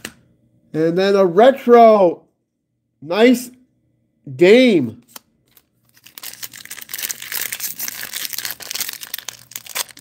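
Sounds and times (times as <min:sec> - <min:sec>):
foil wrapper crinkling and tearing: 0:05.4 - 0:10.0.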